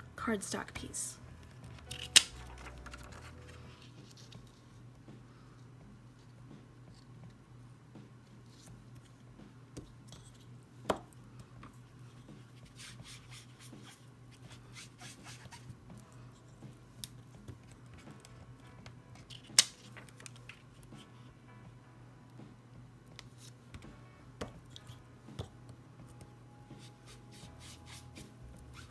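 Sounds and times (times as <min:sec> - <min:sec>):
sponge dabbing scratchy swishes: 0:26.8 - 0:28.9.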